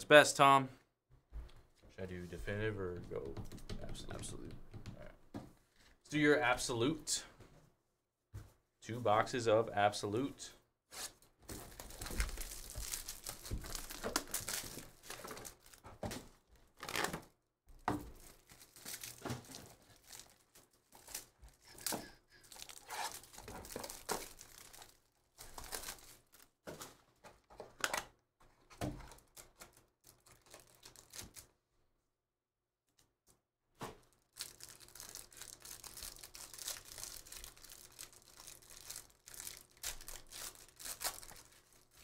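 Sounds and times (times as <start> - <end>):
plastic wrappers crinkling and tearing: 11.5 - 17.2, 18.0 - 26.6, 29.0 - 31.5, 34.0 - 42.0.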